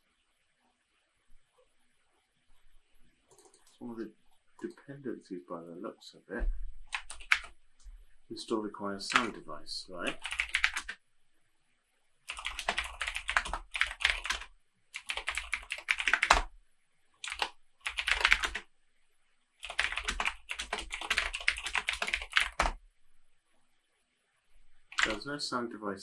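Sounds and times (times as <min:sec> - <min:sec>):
typing on keyboard: 0:03.3 - 0:03.8, 0:06.9 - 0:07.6, 0:09.0 - 0:09.4, 0:10.0 - 0:11.0, 0:12.3 - 0:16.5, 0:17.2 - 0:18.7, 0:19.6 - 0:22.8, 0:24.9 - 0:25.2.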